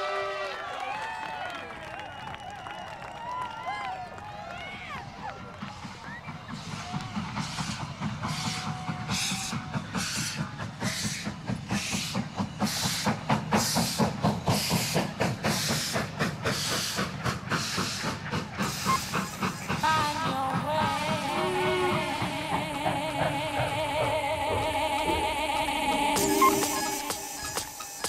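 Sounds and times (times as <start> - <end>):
rhythmic background music: 21.8 - 28.0.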